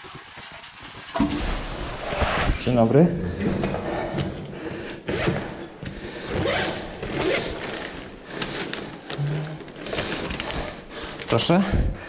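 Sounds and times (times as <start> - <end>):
backpack zipper swishing: 6.3 - 8.1.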